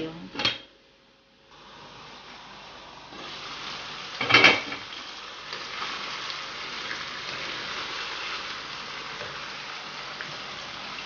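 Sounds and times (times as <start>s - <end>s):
chicken sizzling in a frying pan: 1.5s - 11.0s
cookware clattering: 4.2s - 4.9s.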